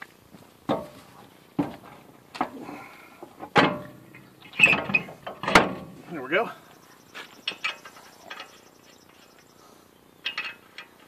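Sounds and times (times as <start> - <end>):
metal wheel clunking on studs: 0.7 - 2.6, 3.4 - 6.2.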